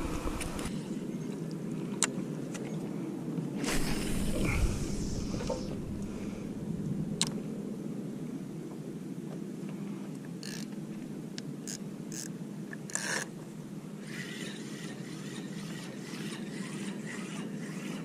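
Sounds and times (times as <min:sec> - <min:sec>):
wind and water rumble: 0:00.0 - 0:11.7
water hissing against hull: 0:03.6 - 0:06.7.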